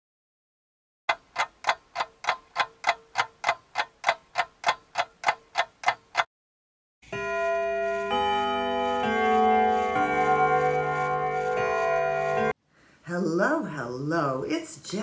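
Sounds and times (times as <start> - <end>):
clock ticking: 1.1 - 6.3.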